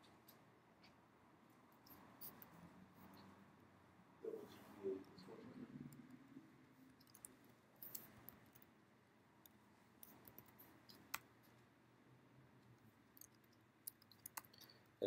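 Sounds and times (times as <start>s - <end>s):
keyboard and mouse clicks: 6.8s - 8.7s, 9.4s - 11.6s, 12.6s - 14.9s.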